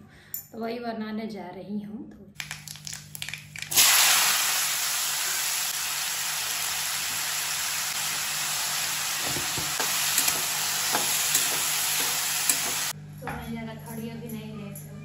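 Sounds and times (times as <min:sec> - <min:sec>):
vegetables sizzling in hot oil: 0:03.6 - 0:12.9.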